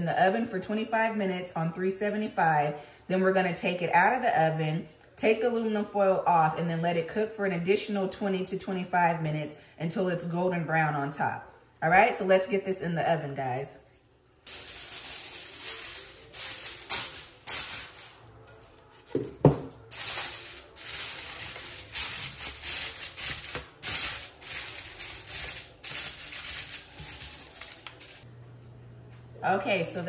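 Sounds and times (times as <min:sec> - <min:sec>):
aluminum foil crinkling: 0:14.4 - 0:28.2.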